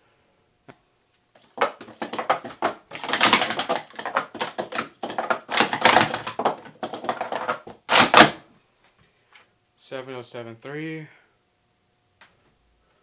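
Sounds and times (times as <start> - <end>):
plastic cups clacking: 1.4 - 8.4.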